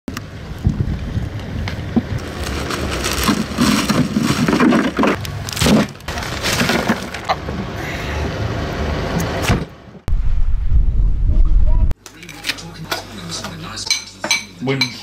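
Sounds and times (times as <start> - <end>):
wind buffeting microphone: 0.4 - 2.2
plastic bag crinkling: 2.2 - 7.3
plastic bag flapping: 2.2 - 7.3.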